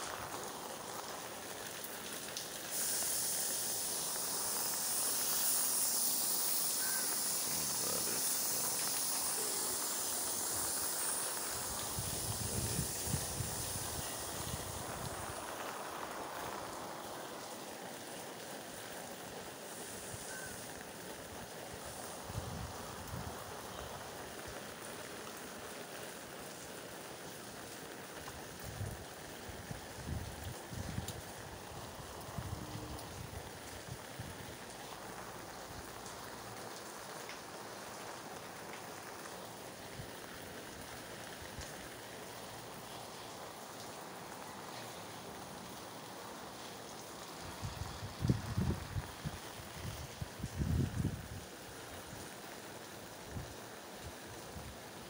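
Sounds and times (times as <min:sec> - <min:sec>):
steady rain hiss: 0:00.0 - 0:55.0
wind on microphone: 0:11.6 - 0:15.3, 0:47.6 - 0:51.4.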